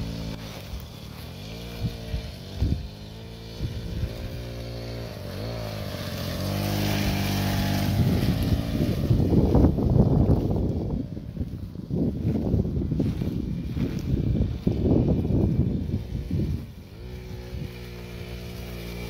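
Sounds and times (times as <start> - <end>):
mini motorbike engine revving: 0.0 - 19.0.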